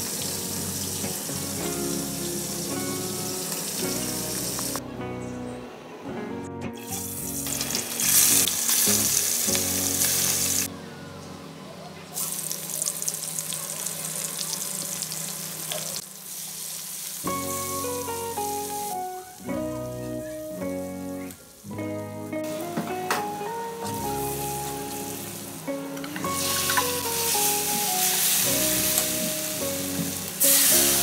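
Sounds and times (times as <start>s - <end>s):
onions sizzling in hot oil: 0.0s - 4.8s, 7.1s - 10.7s, 12.2s - 17.5s, 26.2s - 31.0s
background music: 0.0s - 11.8s, 17.3s - 31.0s.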